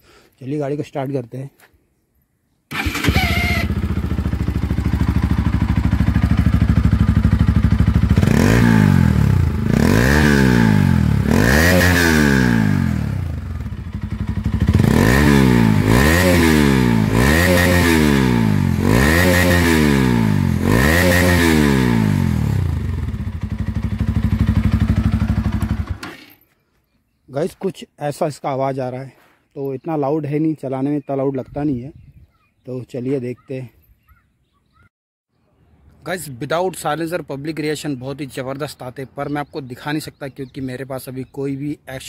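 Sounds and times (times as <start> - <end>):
motorcycle engine revving: 2.7 - 26.3.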